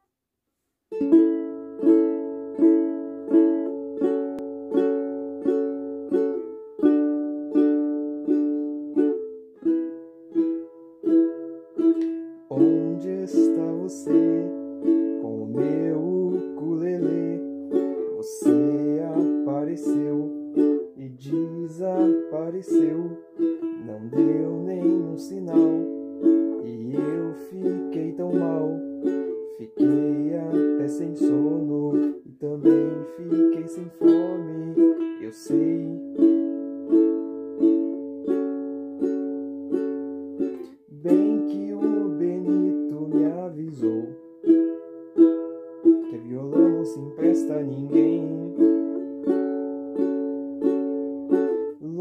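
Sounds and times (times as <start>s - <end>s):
ukulele strumming chords: 0.9s - 52.0s
man singing: 12.5s - 36.5s, 40.7s - 44.3s, 45.9s - 49.1s, 51.3s - 52.0s.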